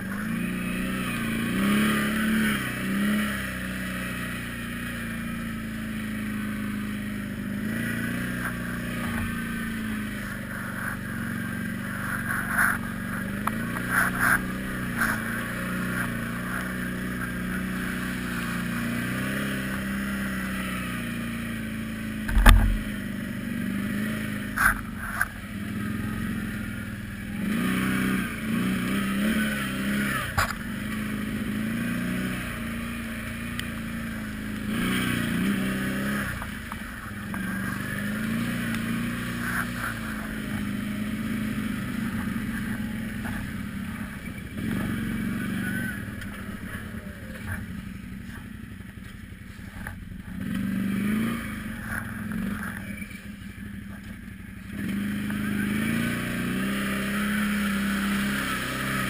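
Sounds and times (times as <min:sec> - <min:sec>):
quad bike engine revving: 0:00.0 - 0:59.0
heavy thump: 0:22.2 - 0:22.9.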